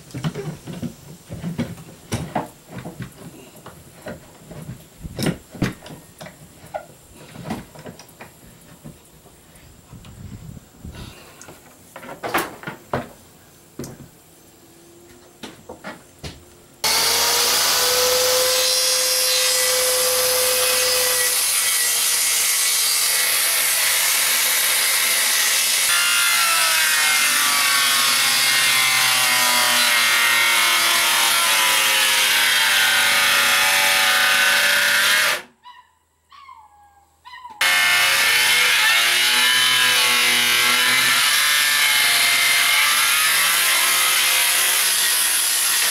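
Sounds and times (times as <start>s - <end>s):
circular saw cutting wood: 16.8s - 35.5s, 37.6s - 45.9s.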